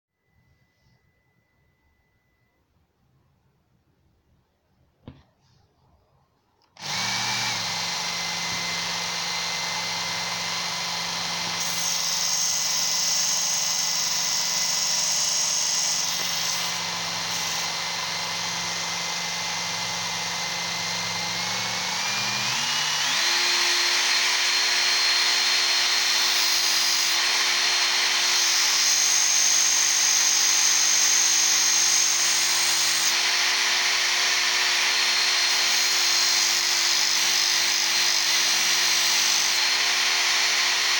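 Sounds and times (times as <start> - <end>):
abrasive belt grinding a chisel: 6.8 - 40.9
belt sharpener motor whine: 6.8 - 40.9.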